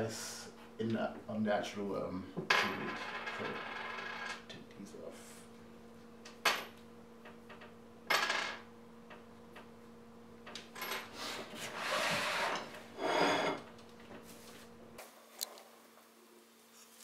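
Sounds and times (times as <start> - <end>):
board sliding on wooden table: 11.6 - 13.6.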